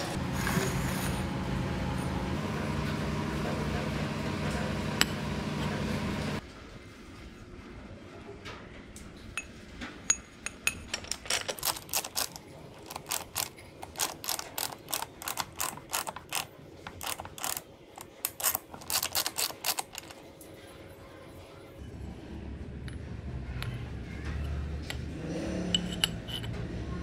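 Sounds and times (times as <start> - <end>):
low workshop hum: 0.0 - 27.0.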